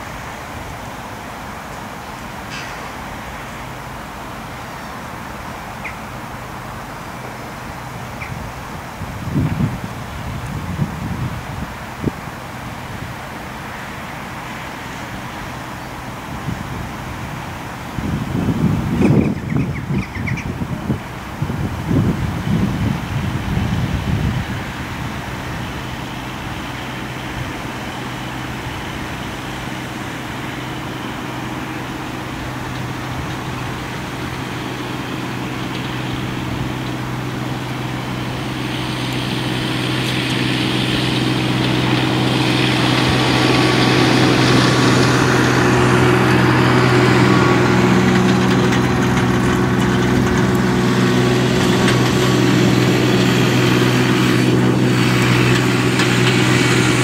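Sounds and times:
engine idling: 0:12.3 - 0:57.0.

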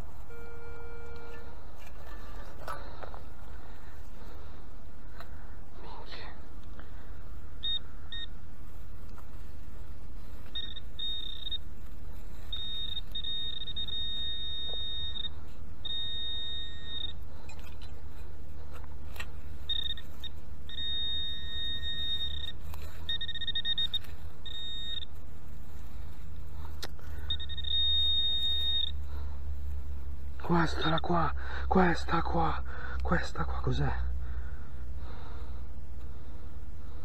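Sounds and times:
metal detector beeping: 0:00.0 - 0:04.5, 0:07.6 - 0:08.4, 0:09.1 - 0:18.0, 0:18.6 - 0:33.8
low steady rumble: 0:00.0 - 0:37.0.

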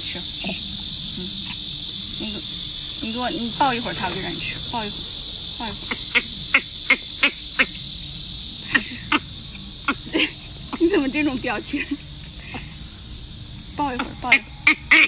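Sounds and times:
high-pitched insect chorus: 0:00.0 - 0:15.0
young macaque calls: 0:05.6 - 0:07.7, 0:08.6 - 0:11.8, 0:13.8 - 0:15.0.

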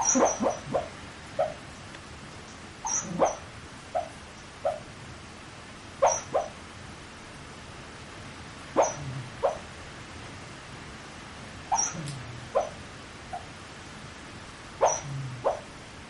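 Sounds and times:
sleeping dog yipping and woofing: 0:00.0 - 0:01.6, 0:02.8 - 0:04.9, 0:06.0 - 0:06.6, 0:08.8 - 0:09.7, 0:11.7 - 0:13.5, 0:14.8 - 0:15.7.

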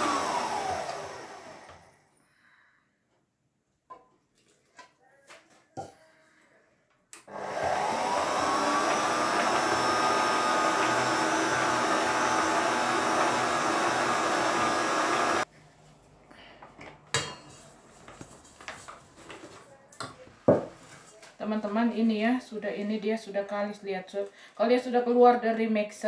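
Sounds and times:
electric mixer motor whine: 0:00.0 - 0:02.0, 0:07.3 - 0:15.5.

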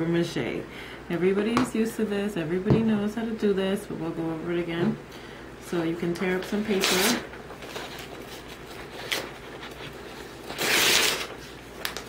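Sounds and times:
paper rustling: 0:06.4 - 0:12.0
paper tearing: 0:06.7 - 0:12.0.

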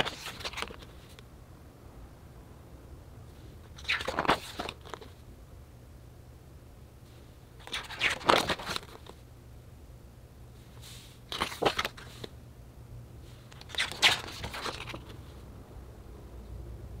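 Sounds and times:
book pages turning: 0:00.0 - 0:01.2, 0:03.6 - 0:05.2, 0:07.6 - 0:09.2, 0:10.8 - 0:12.4, 0:13.3 - 0:15.4.

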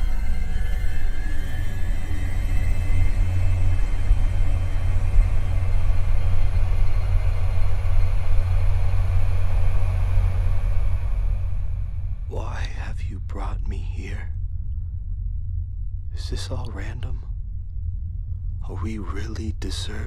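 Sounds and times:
faint rising high tone: 0:00.0 - 0:12.4
loud deep steady rumble: 0:00.0 - 0:20.0.

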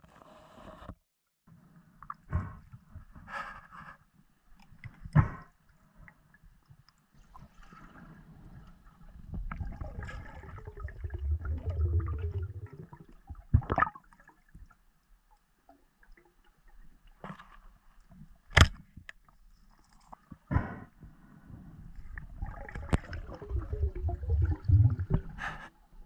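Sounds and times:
underwater gurgling rumble: 0:07.6 - 0:14.0, 0:21.6 - 0:25.6.

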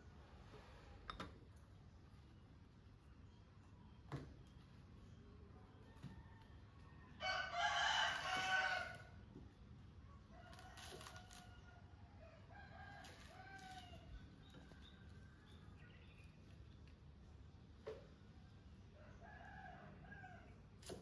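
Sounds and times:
rooster crowing: 0:06.1 - 0:09.1, 0:10.3 - 0:14.2.

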